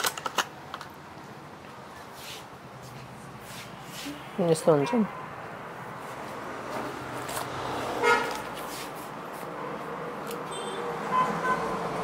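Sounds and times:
traffic noise: 0:00.0 - 0:12.0
vehicle horn toot: 0:08.0 - 0:08.4, 0:10.5 - 0:11.8.

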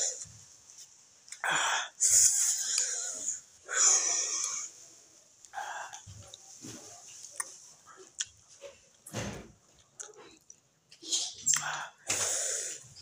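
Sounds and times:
hissing breaths through nose: 0:01.4 - 0:04.7, 0:11.6 - 0:13.0
person chewing: 0:05.4 - 0:09.1, 0:09.7 - 0:13.0.

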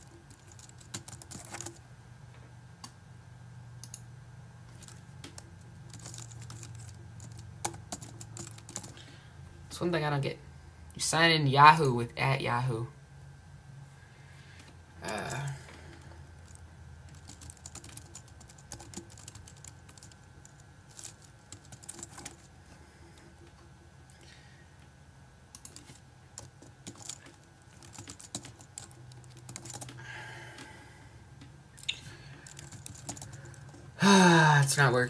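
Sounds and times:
computer keyboard typing: 0:00.0 - 0:01.8, 0:03.8 - 0:04.0, 0:04.7 - 0:09.0, 0:15.0 - 0:22.5, 0:25.5 - 0:30.7, 0:31.8 - 0:34.0.

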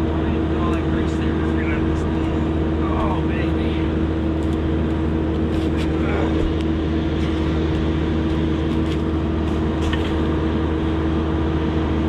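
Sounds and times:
excavator diesel engine running: 0:00.0 - 0:12.0.

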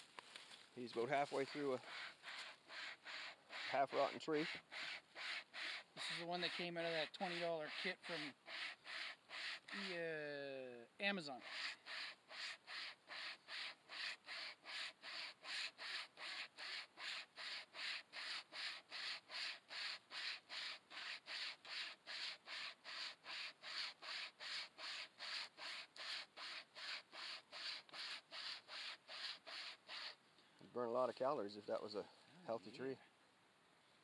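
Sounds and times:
wire saw rasping through wood: 0:01.8 - 0:10.0, 0:11.5 - 0:30.2.

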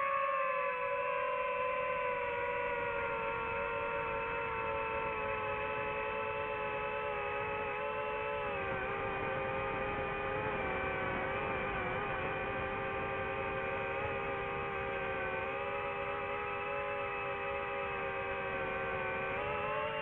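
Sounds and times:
drone propellers whining: 0:00.0 - 0:20.0.

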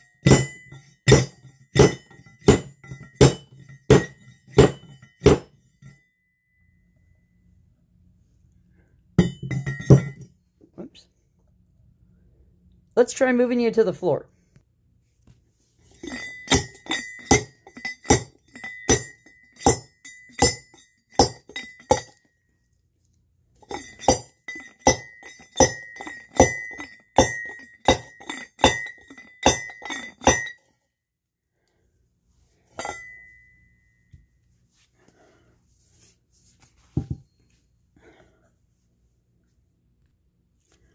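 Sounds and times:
metal pestle clanking in cup: 0:00.0 - 0:05.5, 0:16.0 - 0:22.2, 0:23.6 - 0:30.6, 0:32.8 - 0:33.4.

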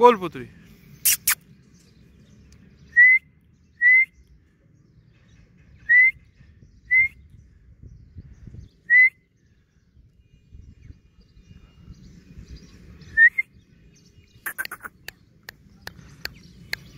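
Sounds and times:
person whistling short notes: 0:03.8 - 0:04.2, 0:08.9 - 0:09.2.

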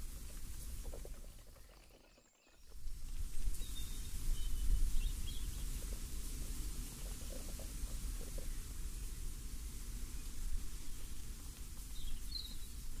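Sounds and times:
breeze with low rumble: 0:00.0 - 0:13.0
rustling leaves: 0:00.0 - 0:13.0
faint bird chirps: 0:00.8 - 0:02.9.

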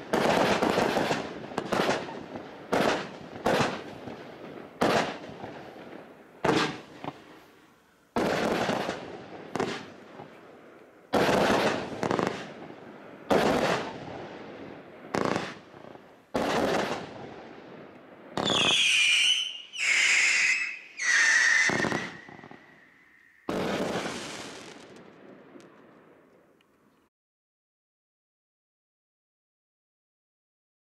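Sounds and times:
firework bangs: 0:00.0 - 0:07.4, 0:08.1 - 0:10.4, 0:11.1 - 0:26.1
firework whistles falling in pitch: 0:18.4 - 0:24.8.

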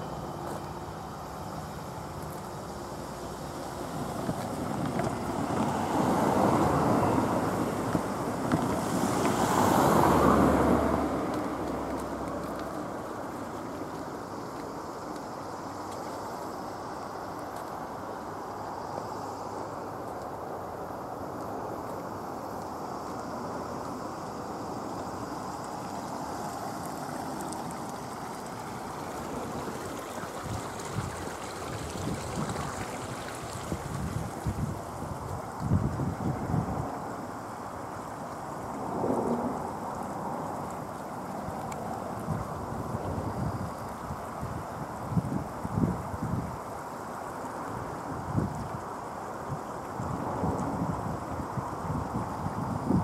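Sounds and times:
low engine hum: 0:00.0 - 0:16.7
steady rushing outdoor noise: 0:00.0 - 0:53.0.

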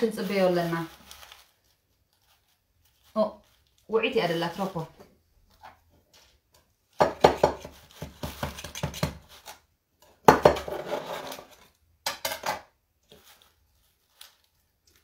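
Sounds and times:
knife scraping metal pan: 0:10.6 - 0:11.6.

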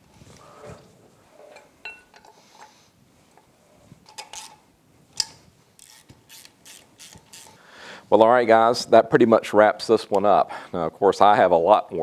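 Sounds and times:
socket wrench clicking: 0:04.1 - 0:04.6, 0:05.2 - 0:07.6.

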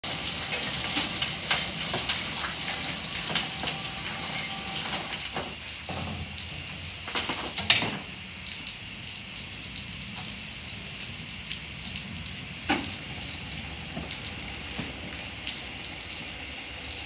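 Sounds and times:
steam hissing: 0:00.0 - 0:08.2, 0:12.0 - 0:17.0.

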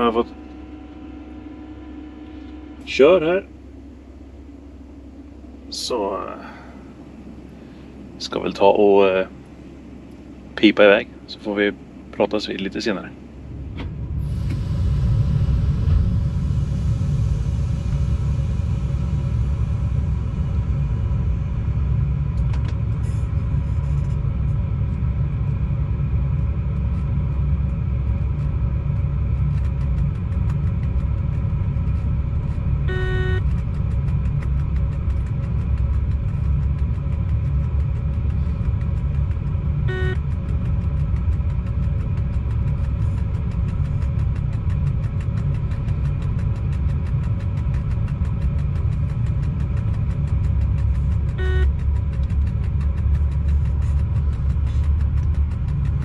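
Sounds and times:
constant hum: 0:00.0 - 0:56.0
locomotive low rumble: 0:00.0 - 0:56.0
short electronic beep: 0:32.9 - 0:33.4, 0:39.9 - 0:40.2, 0:51.4 - 0:51.7.

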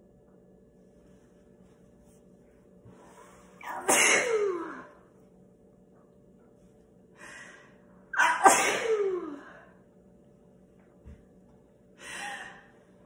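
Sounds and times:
woman sneezing: 0:03.6 - 0:04.9, 0:08.2 - 0:09.5.

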